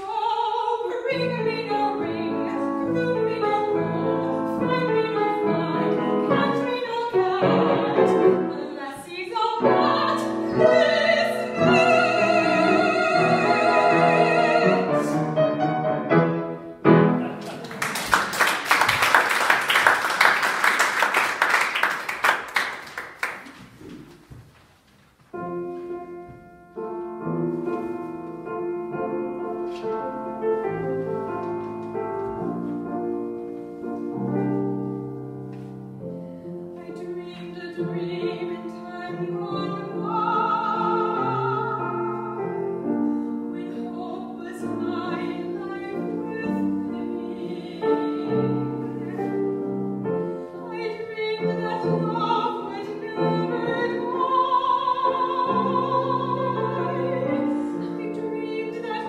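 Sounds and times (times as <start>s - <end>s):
soprano singing: 0.0s - 17.3s, 25.4s - 59.0s
grand piano playing: 0.0s - 17.6s, 25.3s - 59.0s
audience applauding: 17.2s - 24.2s.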